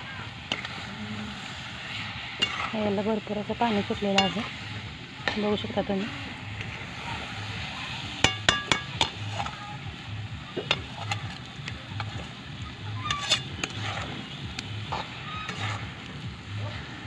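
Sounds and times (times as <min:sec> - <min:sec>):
syrup sizzling: 0:00.0 - 0:17.0
metal spatula scraping a pan: 0:00.5 - 0:04.6, 0:08.1 - 0:09.8, 0:10.7 - 0:11.4, 0:13.0 - 0:16.1
spatula clinking against pan: 0:04.2 - 0:04.4, 0:08.2 - 0:09.2.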